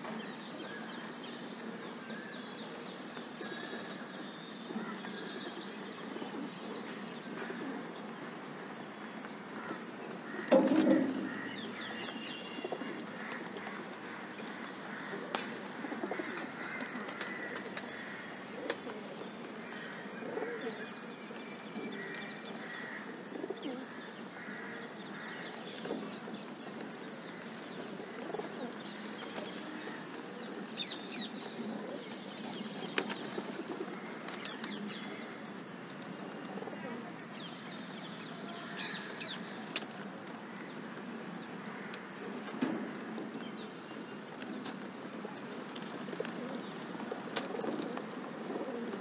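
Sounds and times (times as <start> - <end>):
pigeons cooing: 23.3 - 24.0, 27.8 - 34.8, 44.4 - 49.0.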